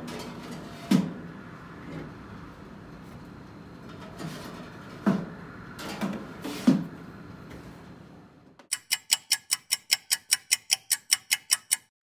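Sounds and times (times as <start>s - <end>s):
stopwatch ticking: 8.7s - 12.0s.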